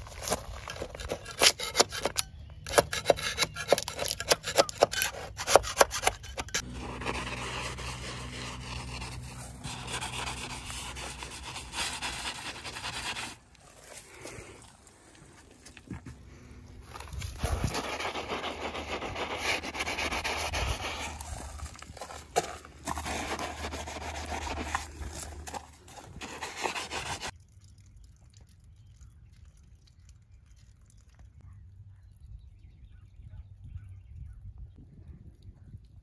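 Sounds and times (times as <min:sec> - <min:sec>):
wash mitt scrubbing hull: 0:06.6 - 0:14.4, 0:17.6 - 0:27.3.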